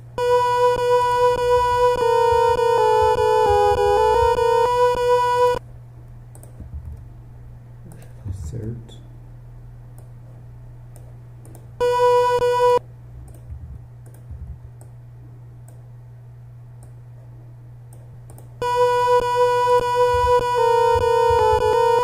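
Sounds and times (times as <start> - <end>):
low electrical hum: 0.0 - 22.0
sampled flute note: 0.2 - 5.6, 18.6 - 22.0.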